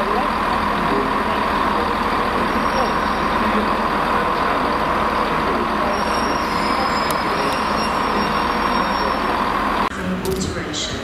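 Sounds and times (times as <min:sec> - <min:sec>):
diesel train engine passing: 0:00.0 - 0:11.0.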